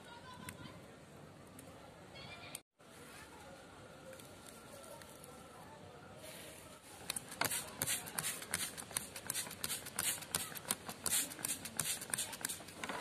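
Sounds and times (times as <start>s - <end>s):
spray bottle hissing squirts: 7.1s - 12.8s.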